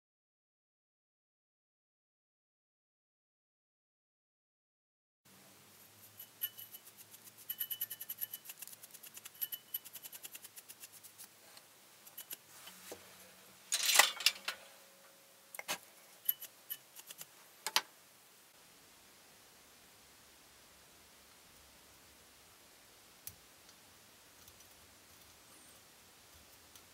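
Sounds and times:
brush bristles sweeping metal: 5.8 - 17.4.

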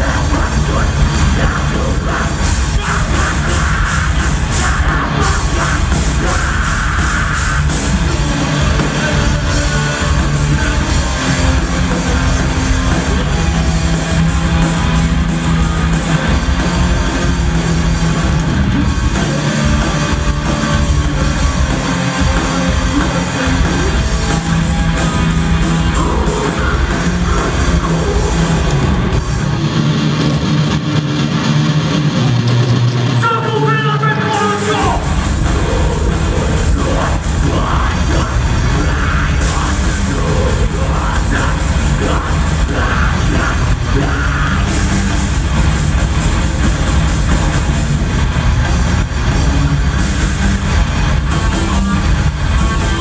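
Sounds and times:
vocalist singing: 0.0 - 29.2, 33.2 - 45.2
bass guitar: 0.0 - 53.0
drums: 0.0 - 53.0
electric guitars: 0.0 - 53.0.

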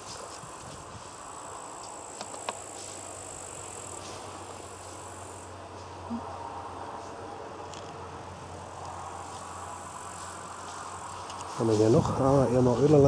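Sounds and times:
high-pitched insect trill: 0.0 - 7.3, 8.2 - 13.0.

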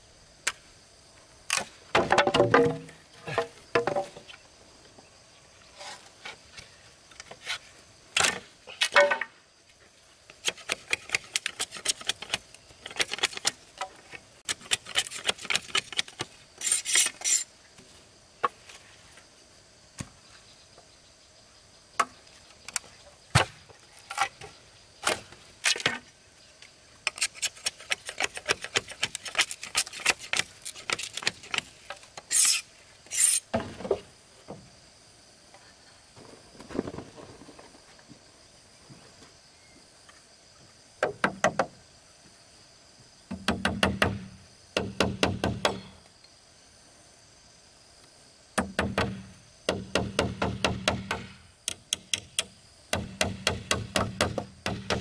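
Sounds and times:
bamboo and wood knocking: 1.5 - 4.4, 8.2 - 9.4, 22.0 - 26.1, 27.0 - 34.7, 41.0 - 41.8, 43.3 - 46.0, 48.6 - 55.0.

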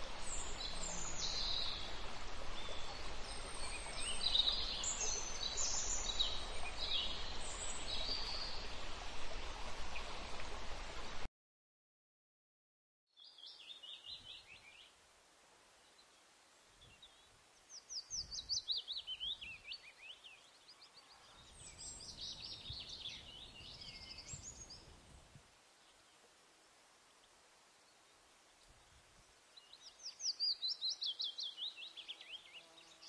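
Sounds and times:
faint steady hiss: 0.0 - 11.3, 13.2 - 33.0
sparrows chirping: 21.4 - 25.0.

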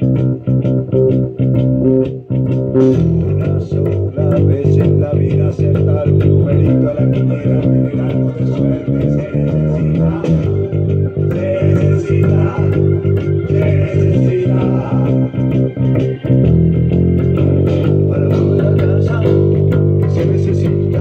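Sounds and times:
fingered electric bass guitar: 0.0 - 21.0
full band recording: 0.0 - 21.0.

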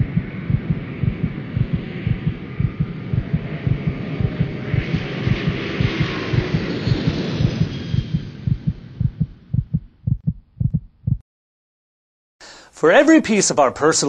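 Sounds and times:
hissing wash: 0.0 - 8.4
low rhythmic thumps: 0.0 - 11.2.

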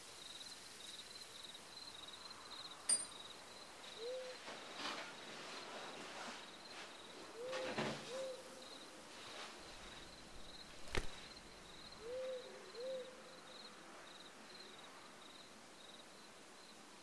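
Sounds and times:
crickets chirping: 0.0 - 17.0
owl hooting: 4.0 - 4.4, 7.3 - 8.7, 11.9 - 13.3.

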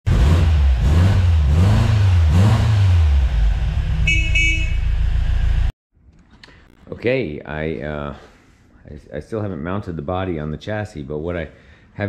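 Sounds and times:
car engine revving: 0.1 - 5.7
car horn toots: 4.0 - 5.1.

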